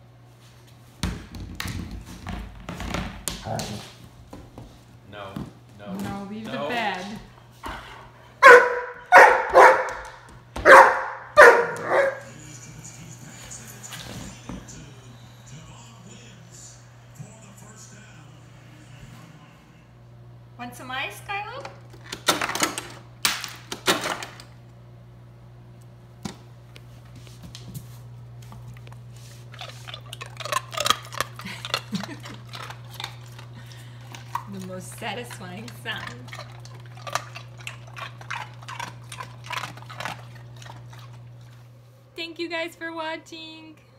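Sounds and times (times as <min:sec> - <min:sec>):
low steady hum: 0:00.0 - 0:43.9
puppy barking: 0:08.4 - 0:12.3
dog crunching ice cubes: 0:28.8 - 0:41.6.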